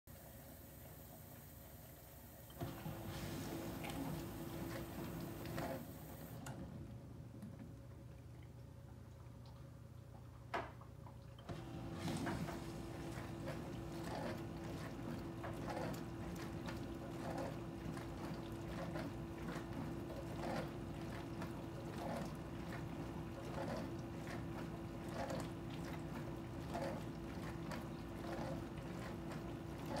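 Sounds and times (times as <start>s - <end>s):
dishwasher motor hum: 0.1s - 30.0s
water swishing: 2.6s - 6.3s.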